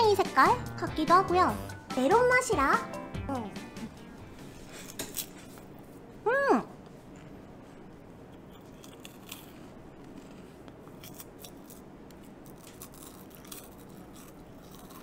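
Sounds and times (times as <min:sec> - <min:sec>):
snack package crinkling: 0:11.0 - 0:15.0.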